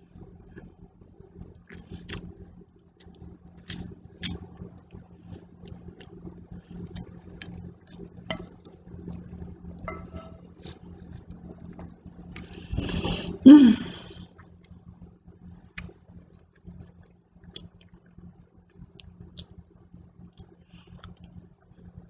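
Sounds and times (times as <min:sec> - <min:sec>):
steady low hum: 0:00.0 - 0:22.0
fork scraping a plate: 0:09.9 - 0:10.6.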